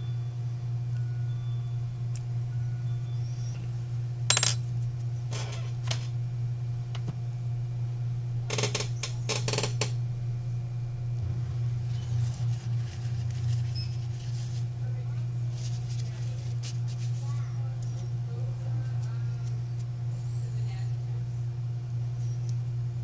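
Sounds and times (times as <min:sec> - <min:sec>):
steady low hum: 0:00.0 - 0:23.0
small metal tools clinking: 0:04.3 - 0:04.6.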